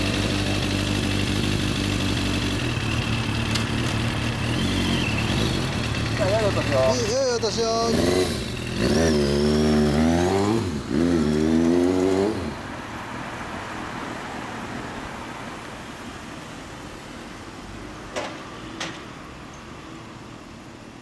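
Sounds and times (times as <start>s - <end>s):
motorcycle engine accelerating: 0.0s - 12.6s
traffic hum: 0.0s - 21.0s.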